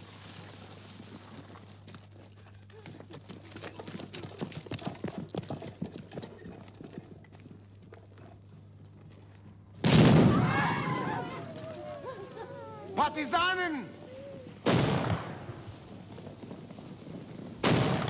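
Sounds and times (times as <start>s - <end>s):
loud blast: 9.8s - 11.3s.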